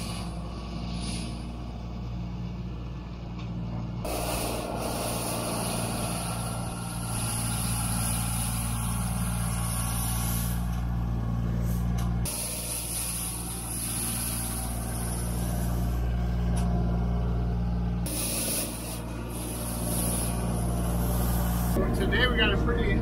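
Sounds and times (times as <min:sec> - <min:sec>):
broom sweeping snow hiss: 0:00.0 - 0:01.8, 0:04.1 - 0:16.1, 0:18.1 - 0:21.8
diesel engine under load: 0:00.0 - 0:23.0.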